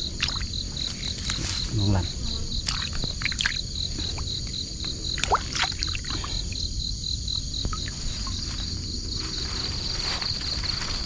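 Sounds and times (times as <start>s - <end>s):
wet grass rustling: 0.0s - 2.0s, 7.8s - 11.0s
insect trill: 0.0s - 11.0s.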